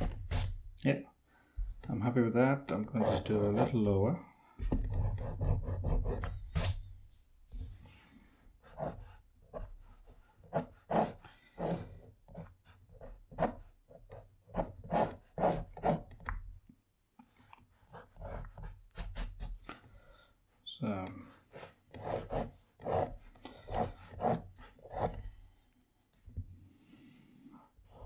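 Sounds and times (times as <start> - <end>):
pencil scratching on paper: 3.0 - 3.9, 4.6 - 6.9, 8.6 - 16.2, 17.7 - 19.6, 21.2 - 25.4, 27.6 - 28.0.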